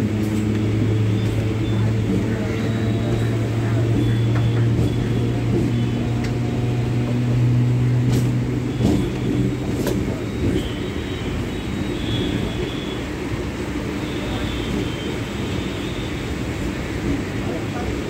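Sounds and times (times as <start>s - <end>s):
electric train hum and rumble: 0.0s - 18.0s
track clacks: 0.2s - 10.8s.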